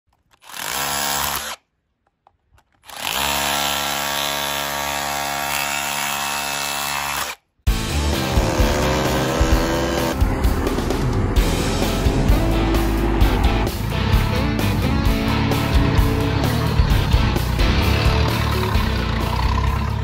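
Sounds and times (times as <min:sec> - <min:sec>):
hammer drill chiselling concrete: 0:00.4 - 0:01.6, 0:02.8 - 0:07.4, 0:08.0 - 0:10.2.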